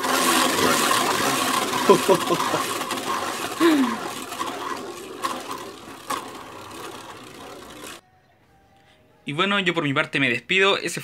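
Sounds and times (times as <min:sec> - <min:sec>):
spinning top whirring: 0:00.0 - 0:08.0.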